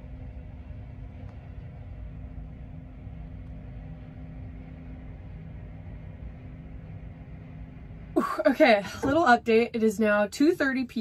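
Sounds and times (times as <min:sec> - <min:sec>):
tractor diesel engine running: 0:07.8 - 0:11.0.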